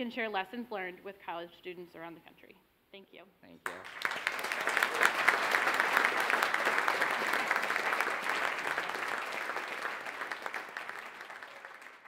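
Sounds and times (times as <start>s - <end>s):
audience applauding: 3.6s - 12.0s.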